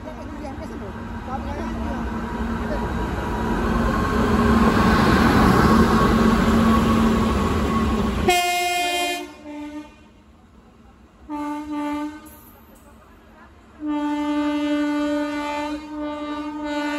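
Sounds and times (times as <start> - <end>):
electric locomotives running: 0.0 - 8.6
locomotive horn: 8.2 - 10.2, 11.3 - 12.4, 13.8 - 16.9.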